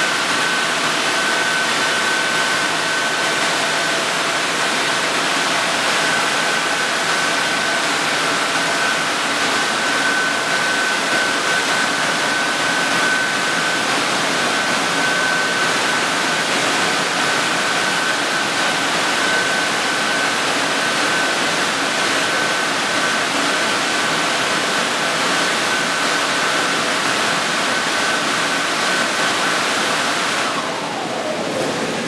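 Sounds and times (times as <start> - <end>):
car wash machine running: 0.0 - 32.0
high steady whine: 0.0 - 32.0.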